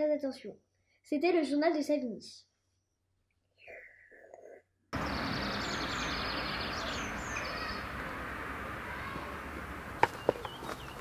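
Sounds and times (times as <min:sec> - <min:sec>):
bird chirps: 0:05.0 - 0:08.3, 0:10.0 - 0:11.0.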